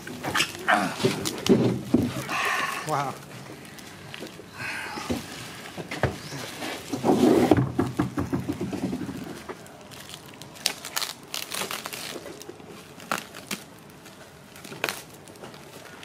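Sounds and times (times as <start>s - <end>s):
plastic wrap crinkling: 8.5s - 16.0s.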